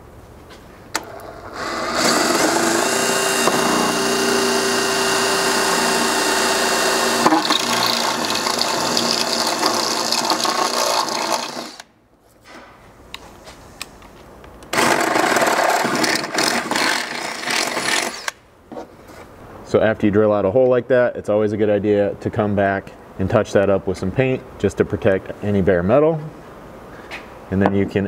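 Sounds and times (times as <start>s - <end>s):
cordless drill boring through steel: 1.5s - 11.8s, 14.8s - 18.4s.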